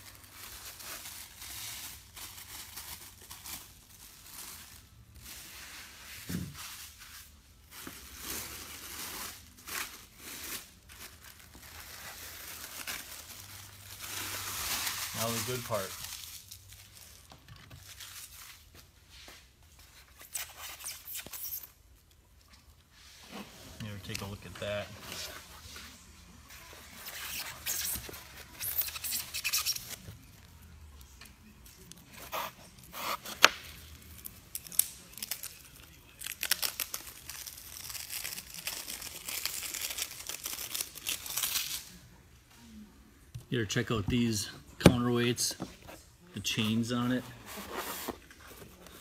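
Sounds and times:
plastic packaging crinkling: 34.0 - 41.9.

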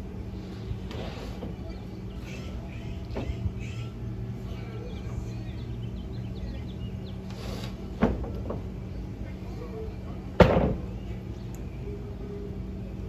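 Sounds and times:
steady low hum: 0.0 - 13.0
bird chirps: 1.5 - 7.8.

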